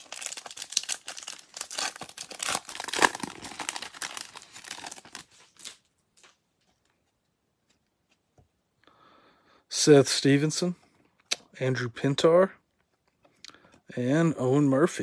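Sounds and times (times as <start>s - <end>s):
card pack wrapper rustling: 0.0s - 6.3s.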